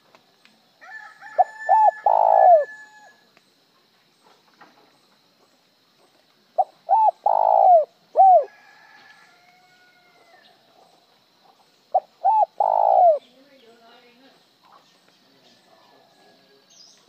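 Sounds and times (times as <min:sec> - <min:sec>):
dove cooing: 0:01.4 - 0:02.9, 0:06.6 - 0:08.5, 0:11.9 - 0:13.2.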